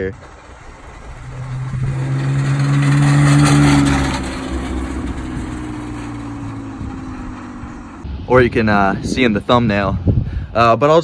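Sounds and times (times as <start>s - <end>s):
car engine hum: 0.0s - 8.3s.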